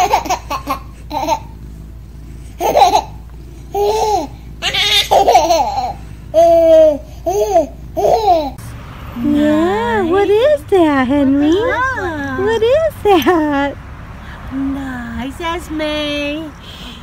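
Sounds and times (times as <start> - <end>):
baby laughing: 0.0 - 1.5, 2.6 - 8.6.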